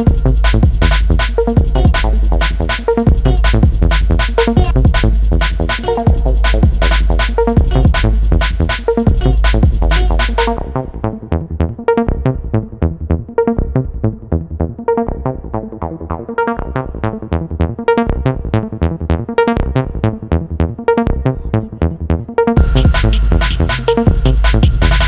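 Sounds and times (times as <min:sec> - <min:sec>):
electronic beat: 0:00.0 - 0:10.6, 0:22.6 - 0:25.0
plucked synth notes: 0:22.6 - 0:25.0.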